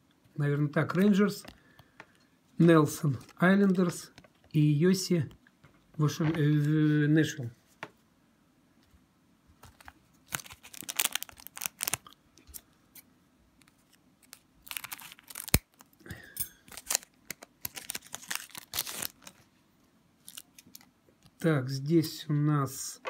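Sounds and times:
foil wrapper crinkling and tearing: 9.6 - 12.6, 13.7 - 16.0, 16.6 - 19.5, 20.2 - 20.9.

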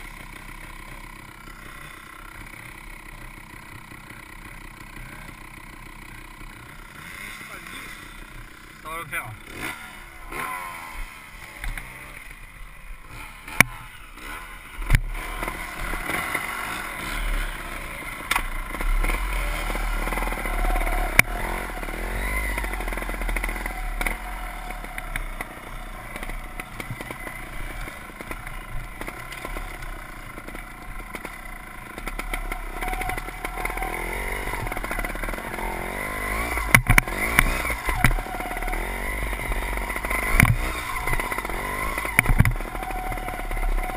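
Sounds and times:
motorcycle engine revving: 0.0 - 43.9
motorcycle knocking on rocks: 36.3 - 38.8, 40.2 - 43.4.

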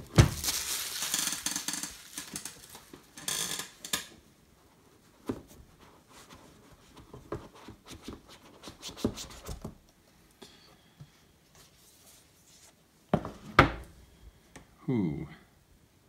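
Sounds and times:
packaging rustling: 0.0 - 3.8.

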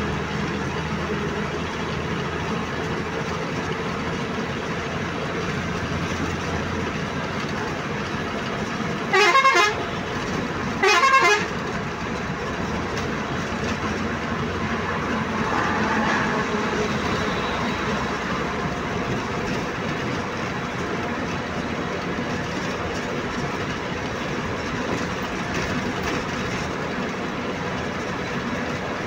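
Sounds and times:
bus engine and road noise: 0.0 - 29.0
horn blasts: 9.1 - 10.1, 10.8 - 11.6, 16.6 - 18.2.

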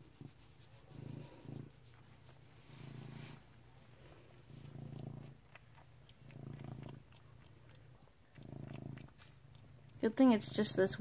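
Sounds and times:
cat purring: 0.0 - 11.0
faint wet clicking: 4.1 - 11.0.

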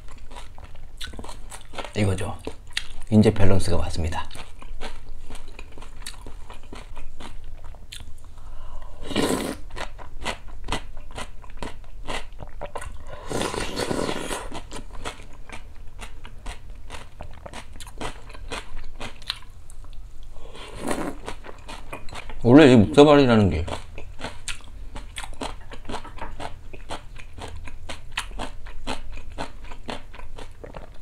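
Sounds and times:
chewing and crunching: 0.0 - 3.1, 4.2 - 8.2, 9.7 - 20.0, 20.7 - 22.4, 23.6 - 31.0
slurping broth: 9.0 - 9.6, 13.1 - 14.6, 20.4 - 21.4.

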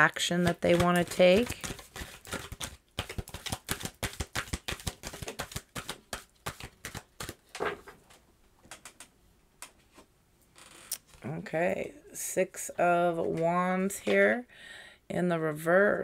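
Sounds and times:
cards being shuffled: 0.0 - 7.9
card taps and rustles: 0.3 - 8.0.

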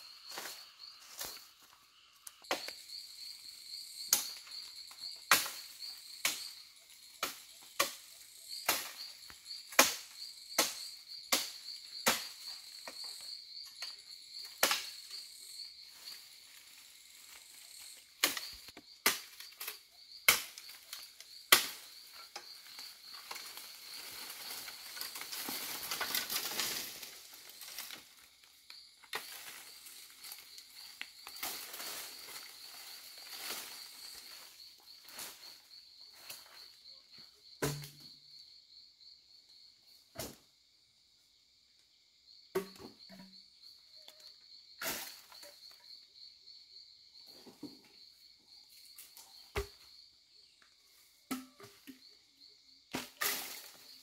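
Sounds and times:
insects chirring: 0.0 - 54.0
leafy branches rustling: 21.9 - 36.4
dry bamboo cracking and snapping: 22.8 - 28.2.

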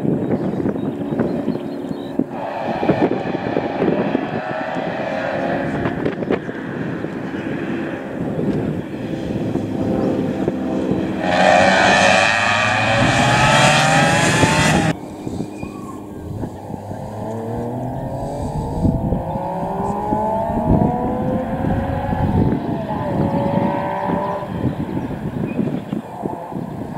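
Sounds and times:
distant rally car revving: 0.0 - 26.9
rally car accelerating past: 2.4 - 15.0.

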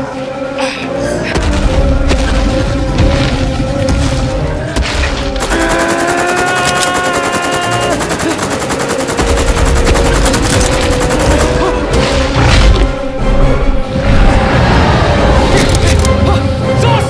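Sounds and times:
background music: 0.0 - 17.0.

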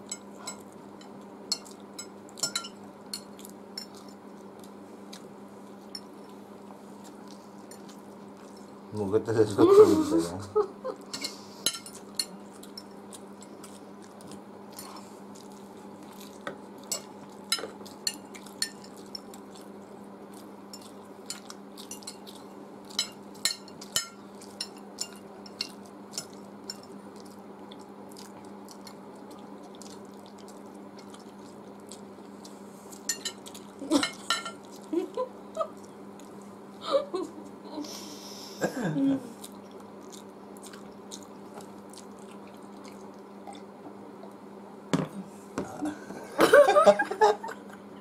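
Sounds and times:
steady low hum: 0.0 - 48.0
cutlery clinking on glass plates: 34.0 - 34.6.

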